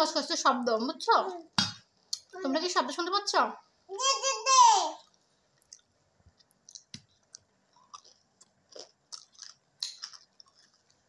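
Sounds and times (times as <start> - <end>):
person chewing crunchy food: 5.0 - 11.0.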